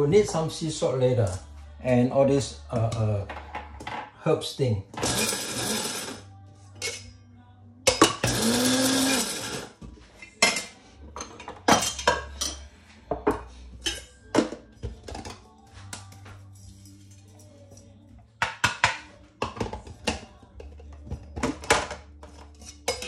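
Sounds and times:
spice grinder whirring: 0:05.0 - 0:06.2, 0:08.2 - 0:09.7.

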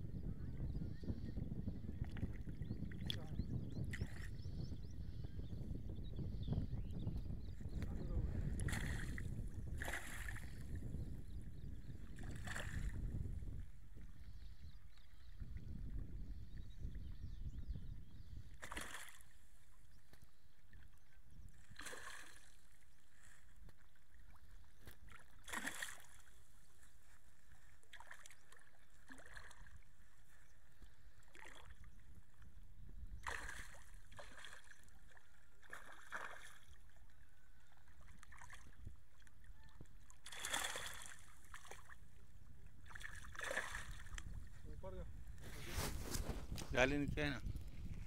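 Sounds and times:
fish splashing in water: 0:09.8 - 0:10.6, 0:18.6 - 0:19.2, 0:21.8 - 0:22.5, 0:25.2 - 0:26.2, 0:35.6 - 0:36.7, 0:40.2 - 0:42.0, 0:42.9 - 0:44.2.

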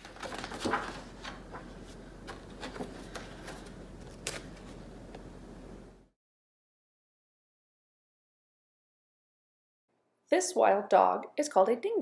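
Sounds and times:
paper rustling and handling clicks: 0:00.0 - 0:04.8
steady low hum: 0:00.4 - 0:06.1.

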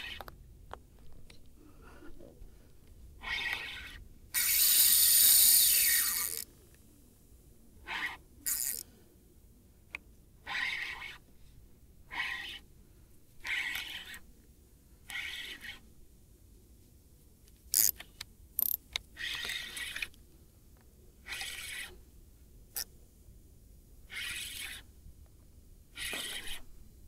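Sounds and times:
fishing reel rasping: 0:03.2 - 0:06.5, 0:08.0 - 0:08.8, 0:17.7 - 0:18.0, 0:24.1 - 0:24.8, 0:26.0 - 0:26.6
sharp reel clicks: 0:03.2 - 0:06.5, 0:08.4 - 0:08.8, 0:17.7 - 0:20.1, 0:26.0 - 0:26.6.

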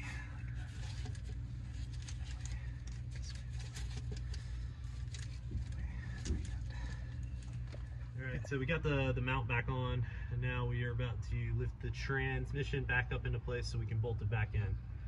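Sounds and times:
steady low hum: 0:00.0 - 0:15.0
rustling and light clicks: 0:00.5 - 0:08.0.

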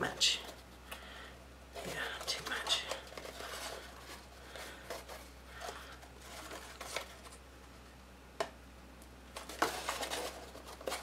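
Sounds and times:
paper rustling: 0:01.8 - 0:07.4, 0:09.4 - 0:11.0.

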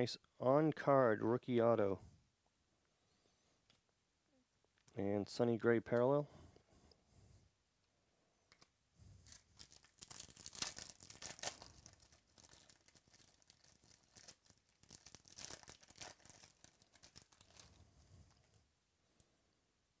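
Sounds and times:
foil wrapper tearing and crinkling: 0:09.2 - 0:18.6.

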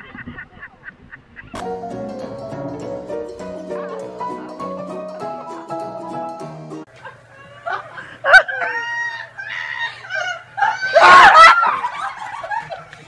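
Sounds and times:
people shrieking and laughing: 0:07.0 - 0:13.0.

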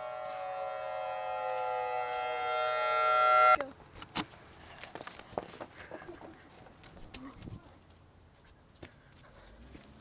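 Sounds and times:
siren-like chord: 0:00.0 - 0:03.6.

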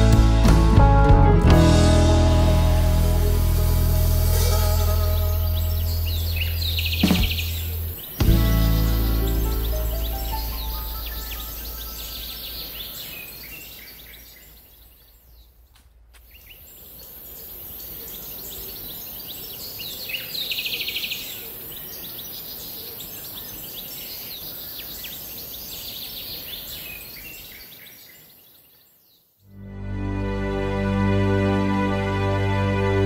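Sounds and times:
background music: 0:00.0 - 0:12.8, 0:29.5 - 0:33.0
steady high hiss: 0:02.3 - 0:15.2
small birds chirping: 0:04.3 - 0:29.5
rapid bird chattering call: 0:05.1 - 0:13.1.

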